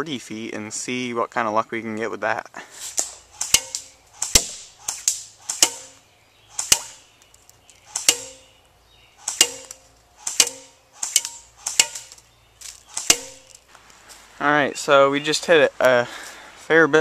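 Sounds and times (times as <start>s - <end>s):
airsoft gun shots: 3.4s - 7.0s, 7.9s - 8.5s, 9.2s - 12.2s, 12.9s - 13.5s.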